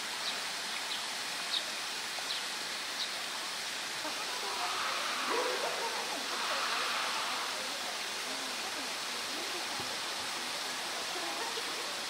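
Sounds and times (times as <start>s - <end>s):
running water rushing: 0.0s - 12.0s
faint distant voices: 3.8s - 12.0s.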